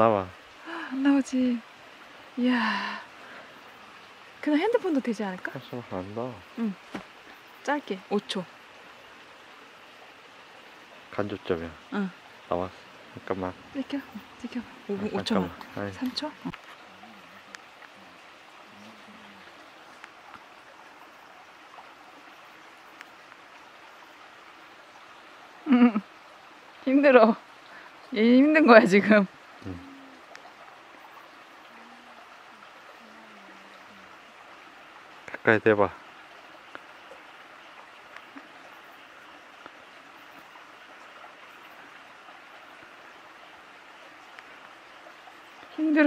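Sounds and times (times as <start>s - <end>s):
faint ticks: 15.5s - 18.0s, 18.8s - 20.6s, 22.9s - 23.5s, 29.6s - 33.0s, 36.6s - 40.6s, 44.2s - 44.6s
person speaking: 29.6s - 30.1s.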